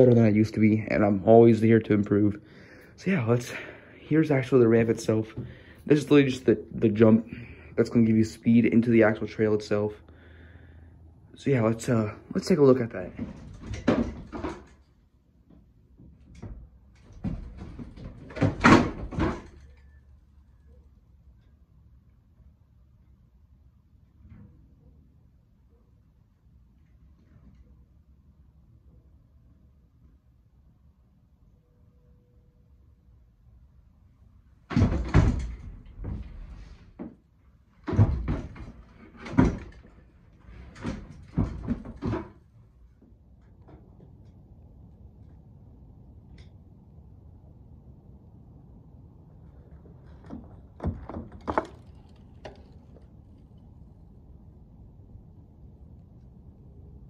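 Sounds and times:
bike thumping on wooden floor: 16.4s - 19.8s, 37.8s - 42.4s, 50.0s - 53.1s
bike tyres knocking on wooden ramp: 50.0s - 53.1s.

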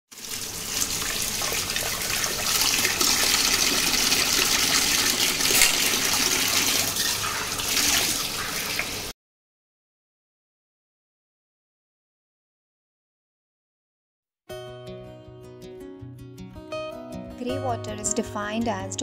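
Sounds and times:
tap water splashing into sink: 0.2s - 9.1s.

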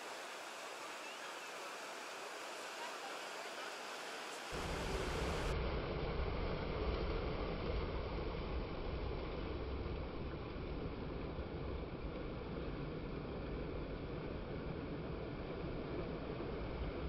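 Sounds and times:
sea surf: 0.0s - 6.8s
wind rumbling on microphone: 4.5s - 17.0s.

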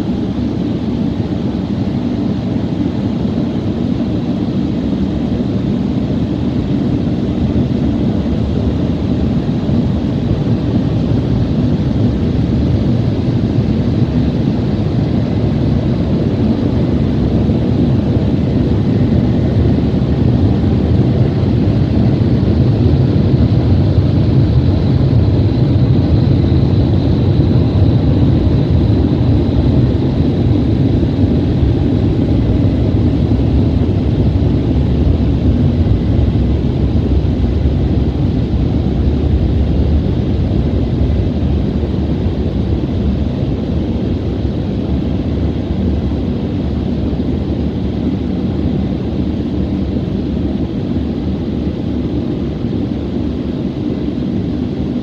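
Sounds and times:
car wash dryer blowers roaring: 7.5s - 49.8s.

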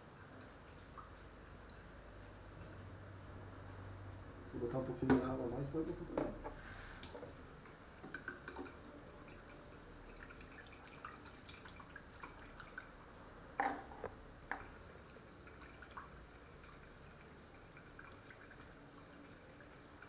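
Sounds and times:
water dripping: 0.3s - 1.9s, 7.0s - 13.7s, 14.5s - 20.0s.

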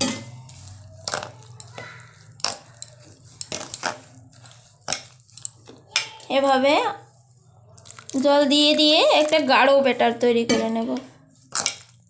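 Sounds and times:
metal spoon scraping steel bowl: 0.0s - 12.0s.

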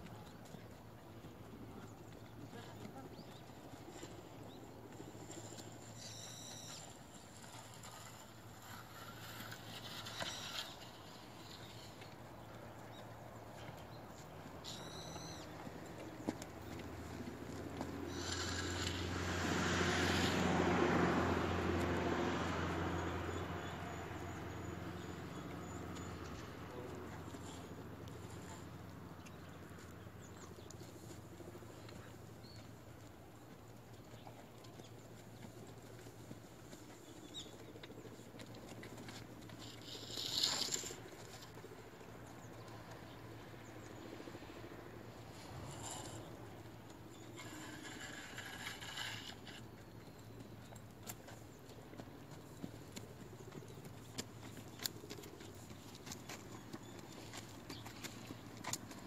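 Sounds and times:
low engine hum: 0.0s - 59.0s
vehicle passing: 15.2s - 30.5s
horse hoofbeats on sand: 29.5s - 40.0s, 45.5s - 59.0s.

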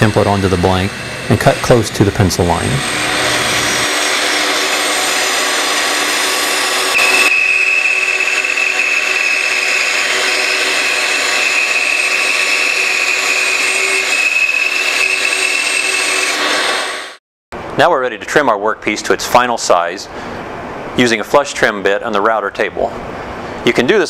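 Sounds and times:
bandsaw cutting wood: 0.0s - 17.2s
high whine: 0.0s - 17.2s.

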